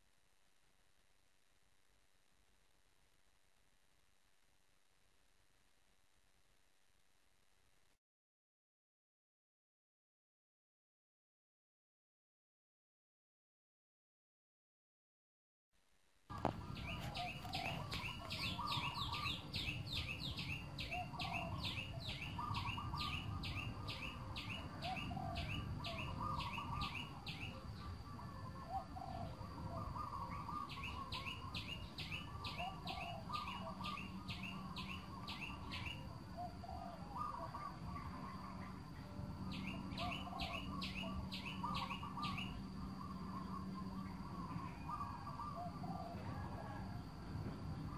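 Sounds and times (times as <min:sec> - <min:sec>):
birds calling with falling high notes: 0:16.4 - 0:46.8
bird warbling: 0:16.7 - 0:27.5, 0:39.6 - 0:46.8.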